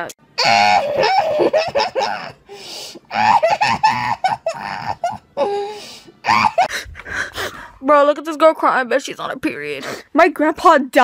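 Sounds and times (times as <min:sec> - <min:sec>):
young woman laughing: 0:03.1 - 0:05.6.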